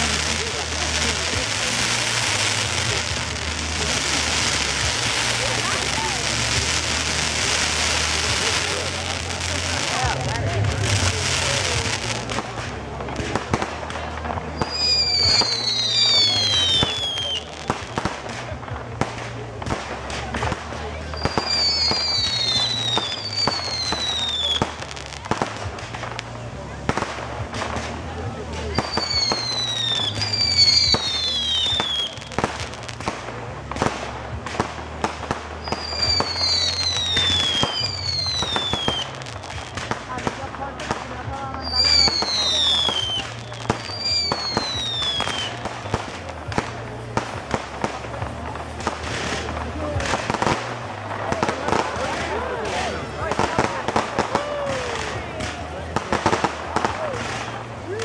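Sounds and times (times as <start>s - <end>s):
fireworks bangs and pops: 0.0s - 58.0s
whistling fireworks: 0.0s - 58.0s
falling firework whistles: 14.6s - 18.0s, 21.1s - 24.9s, 28.7s - 32.7s, 35.6s - 40.0s, 41.6s - 46.2s.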